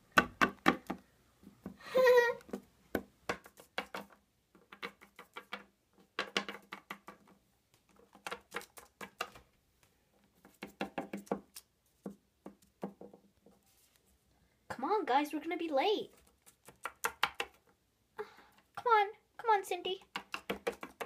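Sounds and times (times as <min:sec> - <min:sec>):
plastic figurines tapping on tabletop: 0:00.2 - 0:01.0, 0:02.4 - 0:09.5, 0:10.5 - 0:13.2, 0:16.6 - 0:17.7, 0:19.9 - 0:21.0.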